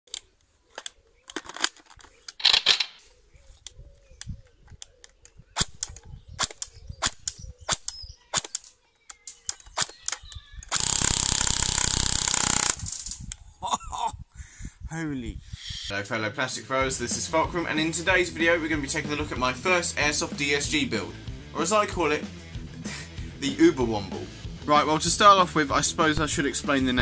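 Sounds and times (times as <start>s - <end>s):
airsoft gun full-auto burst: 10.7s - 13.0s.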